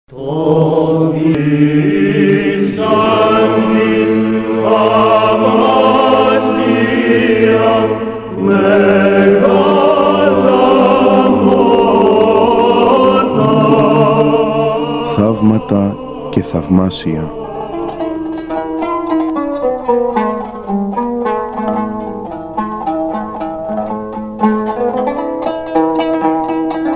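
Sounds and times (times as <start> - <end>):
choir chanting sacred music: 0.1 - 19.9.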